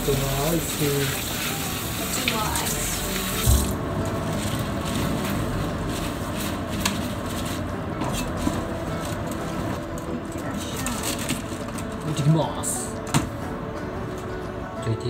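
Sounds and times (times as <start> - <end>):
tap running: 0.0 - 4.2
tap shut off thump: 3.4 - 3.8.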